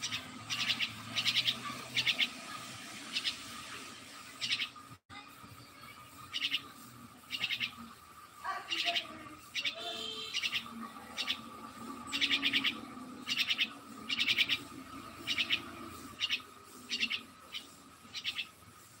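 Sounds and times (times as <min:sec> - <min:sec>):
bird chattering chirps: 0:00.0 - 0:03.6, 0:04.4 - 0:04.8, 0:06.2 - 0:07.9, 0:08.6 - 0:18.6.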